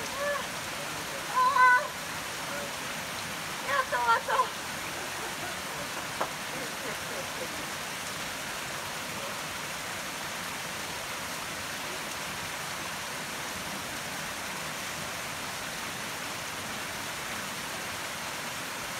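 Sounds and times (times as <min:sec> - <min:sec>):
river flowing: 0:00.0 - 0:18.9.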